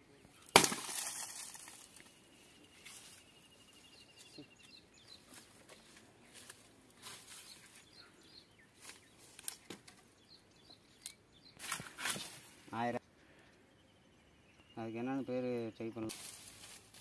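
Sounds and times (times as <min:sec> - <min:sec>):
dry brush rustling and snapping: 0:00.5 - 0:02.1, 0:05.2 - 0:07.9, 0:08.8 - 0:10.0, 0:11.0 - 0:12.6, 0:16.1 - 0:17.0.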